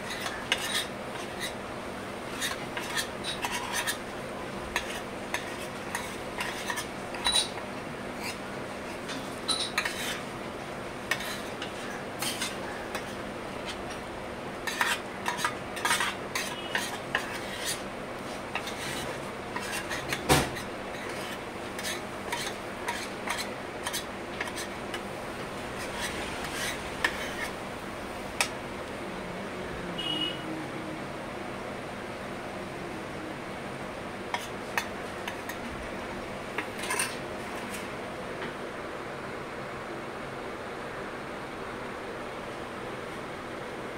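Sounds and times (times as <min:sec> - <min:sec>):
spoon scraping metal plate: 0:00.0 - 0:01.6, 0:02.3 - 0:04.0, 0:04.8 - 0:07.6, 0:09.4 - 0:10.2, 0:11.1 - 0:13.2, 0:14.6 - 0:17.8, 0:18.5 - 0:24.7, 0:25.8 - 0:27.6, 0:36.6 - 0:37.2
steady background hum: 0:00.0 - 0:43.9.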